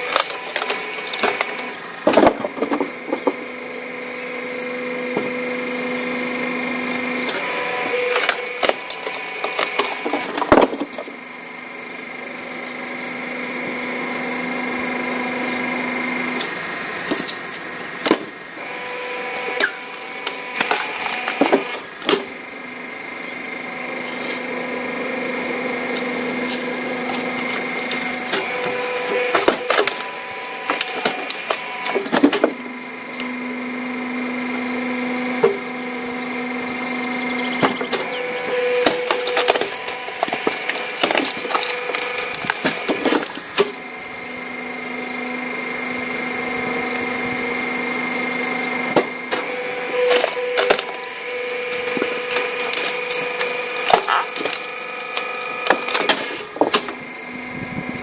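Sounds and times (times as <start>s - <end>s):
firewood machine humming: 0.0s - 58.0s.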